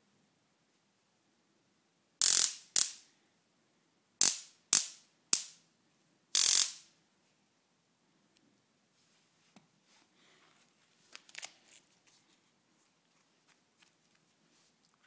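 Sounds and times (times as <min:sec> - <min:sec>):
stun gun crackling zaps: 0:02.2 - 0:03.0, 0:04.2 - 0:05.6, 0:06.4 - 0:06.8.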